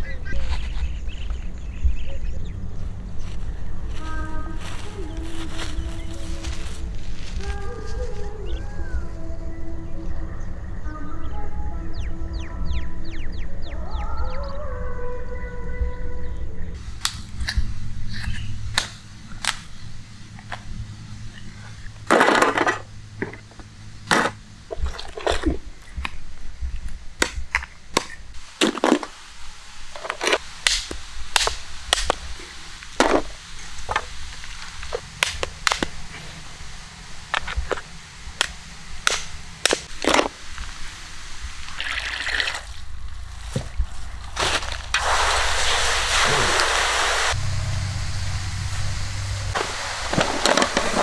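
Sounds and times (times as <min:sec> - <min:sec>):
hose water splashing into metal pan: 0:44.5 - 0:47.4, 0:49.6 - 0:51.0.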